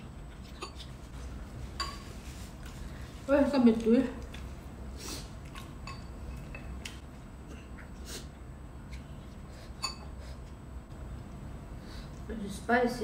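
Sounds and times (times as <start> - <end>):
chopsticks and spoons tapping bowls: 1.8 - 2.1, 5.8 - 6.7.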